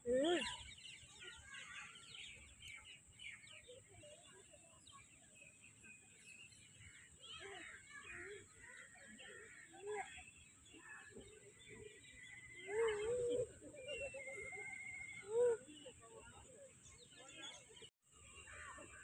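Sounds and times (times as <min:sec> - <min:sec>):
birds chirping: 0:00.0 - 0:19.0
soft voices: 0:06.9 - 0:19.0.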